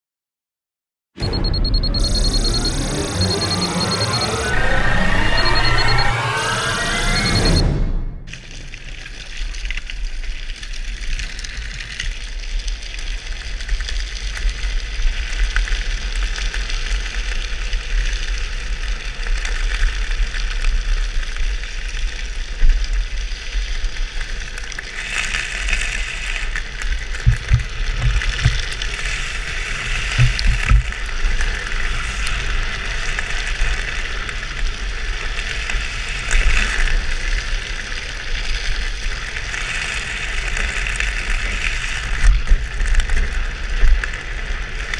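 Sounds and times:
low buffets: 0:01.2 - 0:08.6, 0:27.3 - 0:28.8, 0:30.1 - 0:31.0
wind rumbling on microphone: 0:07.8 - 0:44.9
wheels sliding on asphalt hissing: 0:08.3 - 0:44.9.

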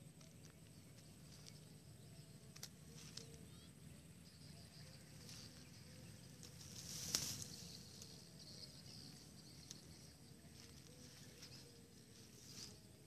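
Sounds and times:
faint high insect buzz: 0:00.0 - 0:13.0
rustling in dry grass: 0:04.8 - 0:13.0
sharp crackle: 0:06.4 - 0:08.2.

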